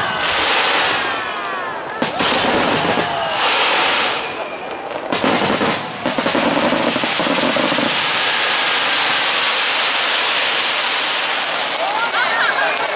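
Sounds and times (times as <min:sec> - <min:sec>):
firework bangs: 0:00.0 - 0:12.9
firework hiss: 0:00.0 - 0:12.9
rapid firework crackling: 0:00.0 - 0:12.9.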